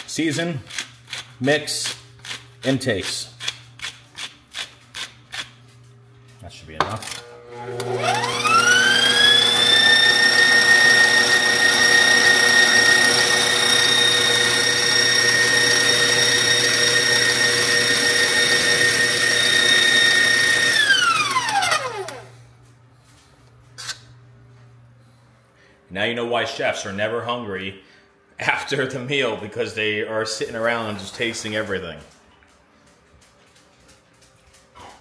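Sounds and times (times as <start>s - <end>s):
electric stand mixer whining: 7.2s - 22.3s.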